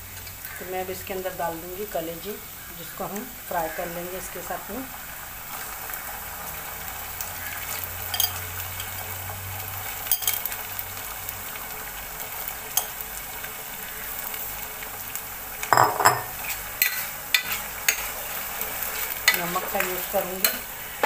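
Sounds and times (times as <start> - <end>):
livers and onions sizzling: 0.0 - 21.0
steel spoon scraping pot: 8.1 - 8.5, 10.1 - 10.5, 15.8 - 20.7.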